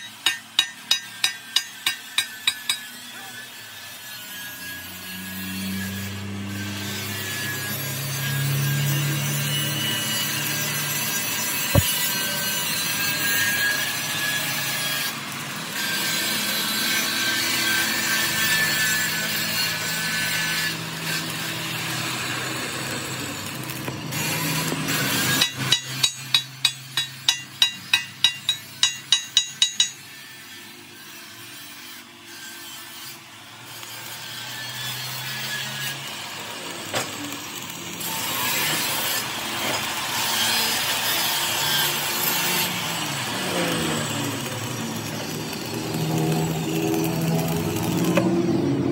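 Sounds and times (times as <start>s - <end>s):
sharp knocks: 11.8s - 12.1s.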